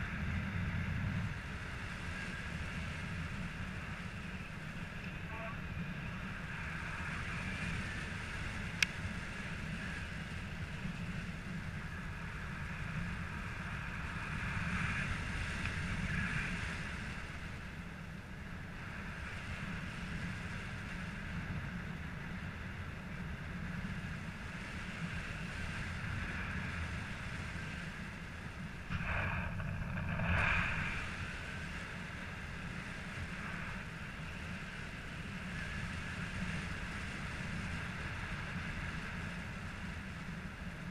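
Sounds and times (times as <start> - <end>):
airflow rushing over microphone: 24.2 - 40.2.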